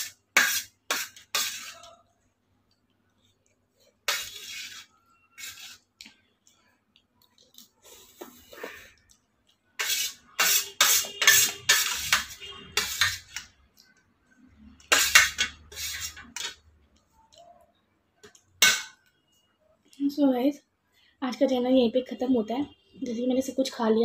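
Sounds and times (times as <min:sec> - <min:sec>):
spoon scraping metal plate: 0:00.0 - 0:02.0, 0:04.0 - 0:05.9, 0:09.8 - 0:13.5, 0:14.7 - 0:16.7, 0:18.6 - 0:19.0.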